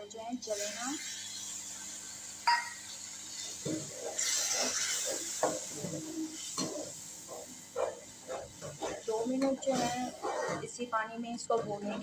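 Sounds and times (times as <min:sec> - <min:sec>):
sizzling hiss of hot oil: 0:00.4 - 0:10.2
spoon clinking against pan: 0:02.5 - 0:02.8
spoon scraping and stirring: 0:07.8 - 0:10.7.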